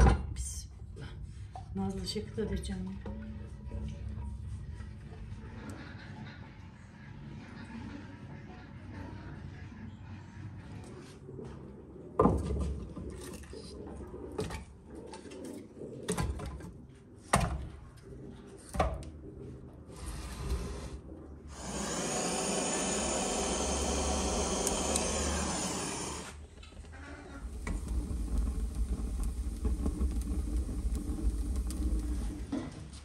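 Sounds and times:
steady hiss: 21.5s - 26.5s, 27.4s - 32.5s.

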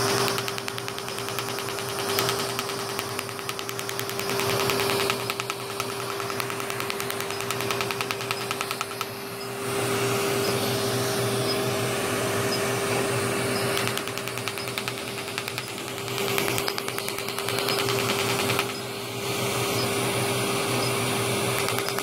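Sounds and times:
laser snapping clicks: 0.0s - 9.5s, 13.6s - 18.9s, 21.6s - 22.0s
equipment hum and air rush: 0.0s - 22.0s.

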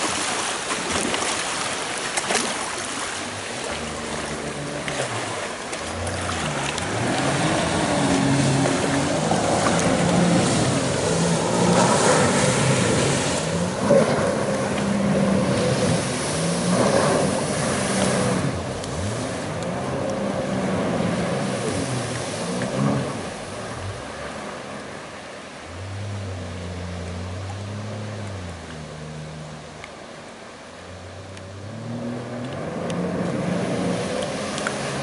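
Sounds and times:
water rushing and splashing: 0.0s - 35.0s
engine revving: 3.8s - 24.0s.

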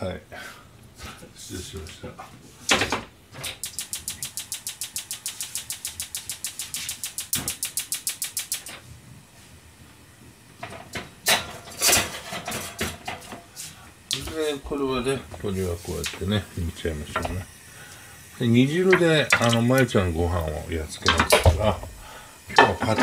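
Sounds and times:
rapid even clicking: 3.4s - 8.8s.

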